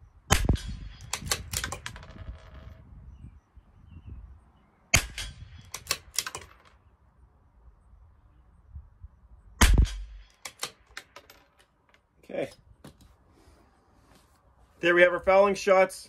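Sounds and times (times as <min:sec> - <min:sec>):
rifle shots: 0:00.3 - 0:02.0, 0:04.9 - 0:06.6, 0:09.6 - 0:10.9
rifle bolt metallic clicks: 0:00.5 - 0:02.0, 0:05.0 - 0:06.8, 0:09.6 - 0:12.0.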